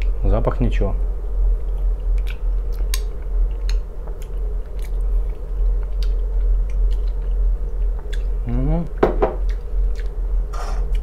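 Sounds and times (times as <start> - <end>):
steady low hum: 0.0 - 11.0
close chewing of soft food: 1.6 - 8.5, 9.4 - 11.0.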